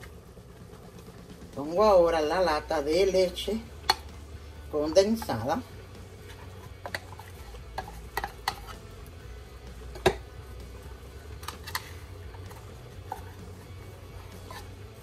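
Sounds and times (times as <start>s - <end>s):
low steady hum: 0.0s - 15.0s
can knocking against blender jar: 6.8s - 8.7s.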